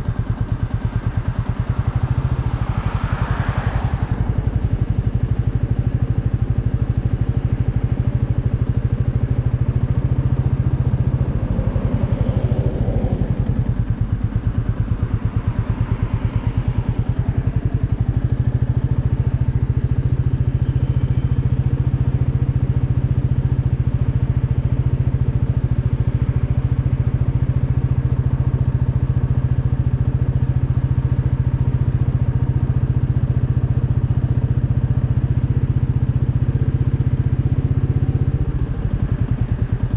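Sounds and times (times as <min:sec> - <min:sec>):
motorcycle engine idling: 0:00.0 - 0:39.9.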